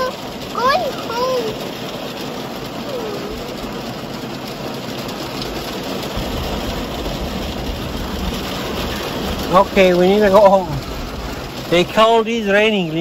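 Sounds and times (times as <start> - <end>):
heavy rain on a car: 0.0 - 13.0
low rumble: 5.4 - 12.0.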